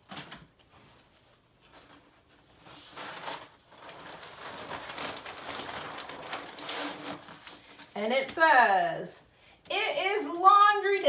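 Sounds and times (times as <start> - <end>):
paper sheet rustling and scraping: 0.8 - 7.9.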